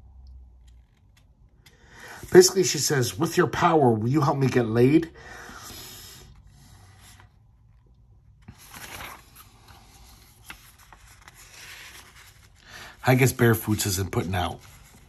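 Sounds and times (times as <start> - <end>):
paper rustling and scraping: 8.3 - 15.0.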